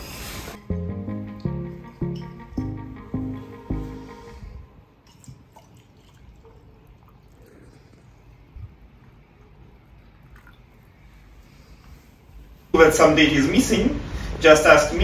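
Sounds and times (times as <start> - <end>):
coffee pouring into a mug: 5.1 - 7.8.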